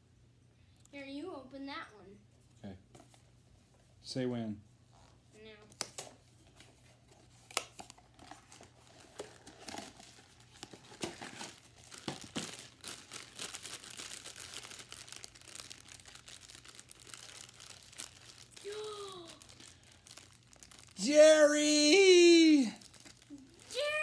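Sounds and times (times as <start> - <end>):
packaging rustling and crackling: 6.4 - 21.4, 22.0 - 24.0.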